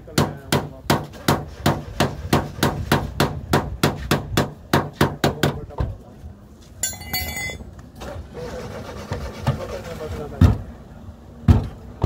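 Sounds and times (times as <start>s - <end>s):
hammer striking metal sill: 6.8s - 7.6s.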